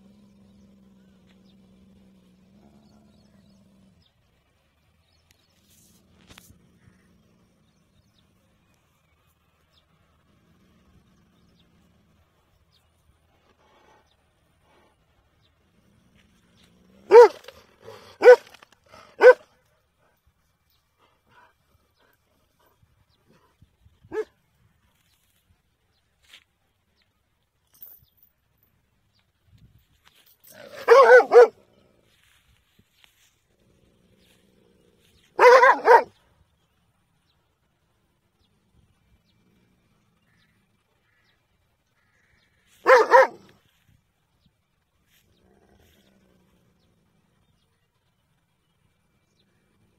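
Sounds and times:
dog barking: 17.1 - 17.5, 18.2 - 18.5, 19.2 - 19.4, 24.1 - 24.3, 30.6 - 31.6, 35.4 - 36.1, 42.8 - 43.5.

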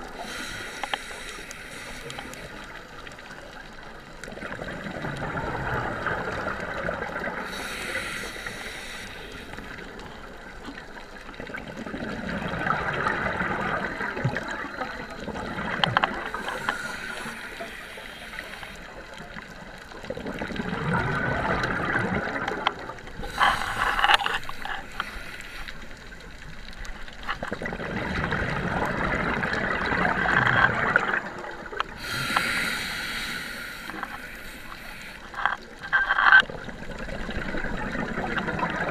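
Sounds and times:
regulator hissing inhale: 0.1 - 2.8, 7.4 - 10.0, 16.2 - 19.0, 23.2 - 26.0, 31.9 - 35.5
bubbling exhale: 20.1 - 25.9, 31.9 - 35.3.

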